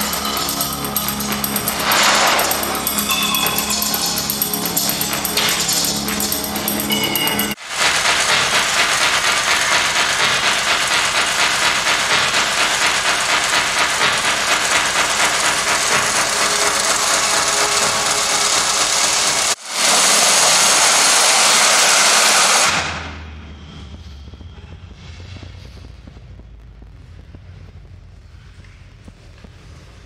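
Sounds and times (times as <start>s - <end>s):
low hum: 0.0s - 7.6s, 20.9s - 30.0s.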